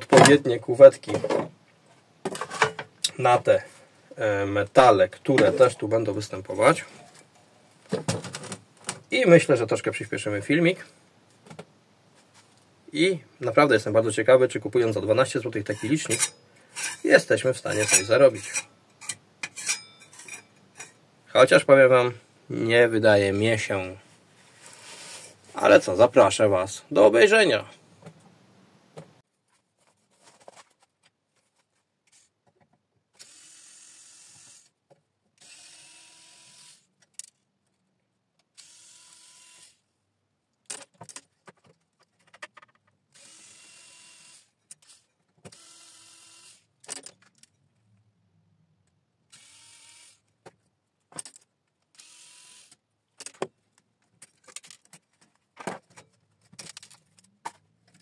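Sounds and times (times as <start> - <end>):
small metal parts clinking: 17.7 - 21.0
cordless screwdriver motor running: 33.2 - 34.6, 35.4 - 36.8, 38.6 - 39.8, 43.2 - 46.6, 49.3 - 50.2, 52.0 - 52.7.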